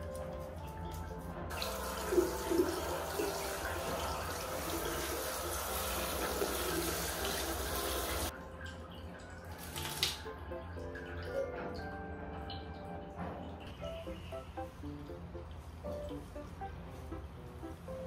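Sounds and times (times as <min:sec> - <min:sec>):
shower water spraying: 0:00.0 - 0:08.4, 0:09.5 - 0:10.4, 0:13.2 - 0:18.0.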